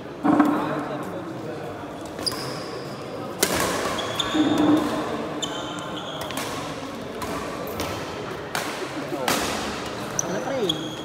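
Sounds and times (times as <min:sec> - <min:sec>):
shoes squeaking on court floor: 0:01.9 - 0:07.9, 0:10.0 - 0:11.0
racket hitting shuttlecock: 0:06.2 - 0:10.0.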